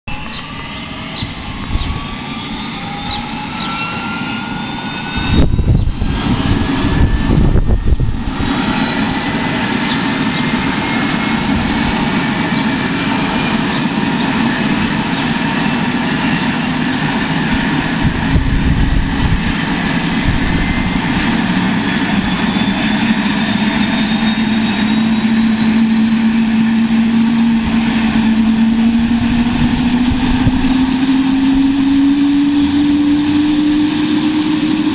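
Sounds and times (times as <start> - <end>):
helicopter turbine whine: 0.1 - 34.9
loud low rumble: 5.0 - 9.3, 25.2 - 34.9.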